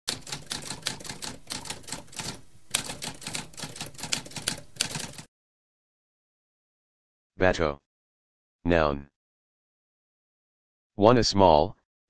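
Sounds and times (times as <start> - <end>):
typewriter keys clacking: 0.1 - 5.3.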